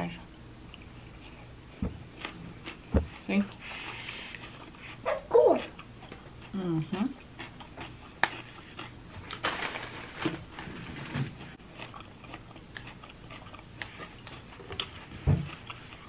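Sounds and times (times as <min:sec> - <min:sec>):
chewing and crunching salad: 0:00.6 - 0:16.0.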